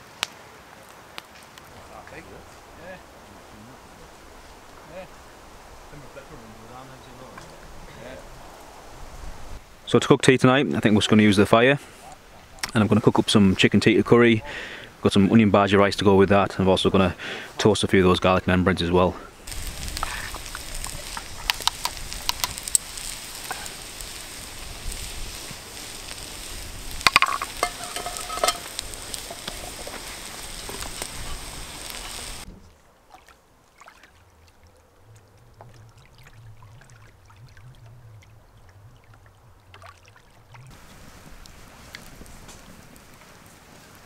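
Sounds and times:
wood fire crackling: 0.0 - 32.5, 40.7 - 44.0
onion and potato sizzling in a pan: 19.4 - 32.5
metal utensils clinking on pans: 27.0 - 29.9.

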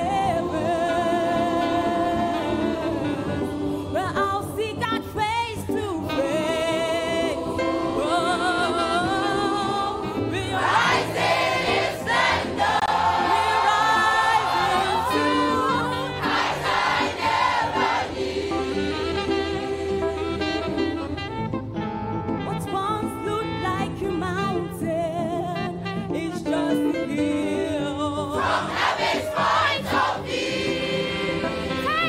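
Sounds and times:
choir singing: 0.0 - 4.0, 6.2 - 20.8, 28.3 - 32.0
woman singing gospel: 0.0 - 10.9, 13.4 - 16.3, 31.7 - 32.0.

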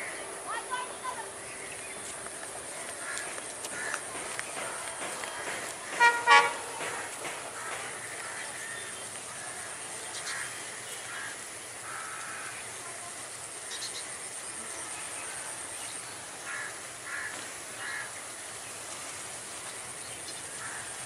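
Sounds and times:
outdoor background noise: 0.0 - 21.0
crows cawing: 2.8 - 12.8, 16.4 - 18.3, 20.4 - 21.0.

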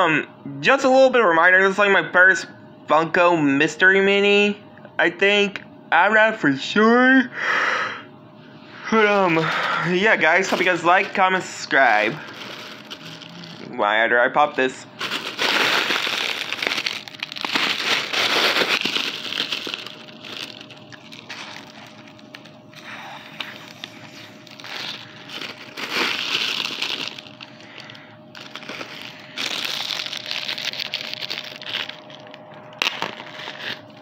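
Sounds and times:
plastic packaging crinkling: 9.0 - 13.7, 14.9 - 34.0
plastic packaging snapping: 15.0 - 22.5, 23.4 - 33.8.

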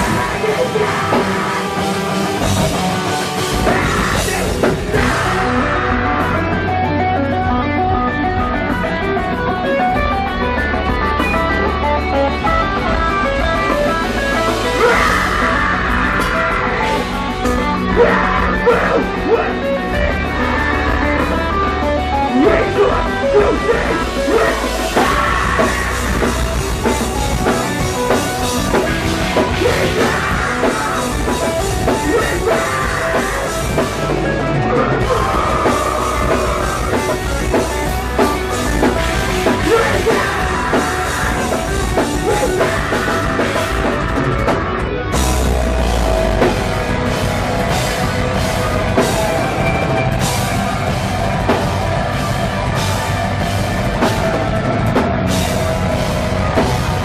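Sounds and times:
screamed vocals: 0.0 - 2.1, 3.4 - 6.6, 14.6 - 17.2, 17.9 - 19.7, 22.3 - 26.5, 29.4 - 37.5, 38.9 - 44.2
distorted electric guitars: 0.0 - 57.0
pounding drum kit: 0.0 - 57.0.

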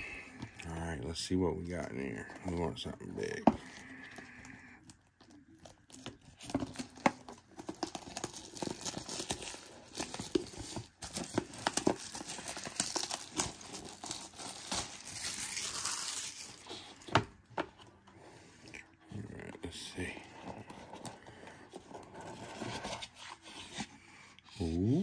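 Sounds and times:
plastic shrink wrap tearing and crinkling: 1.5 - 17.5.

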